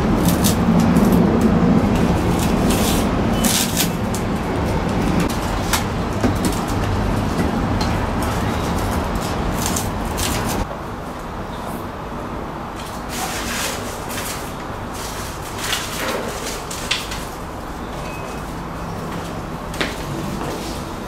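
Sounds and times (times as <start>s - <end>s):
foil tape crinkling and tearing: 0.0s - 4.3s, 8.6s - 10.6s
loud background noise: 0.0s - 21.0s.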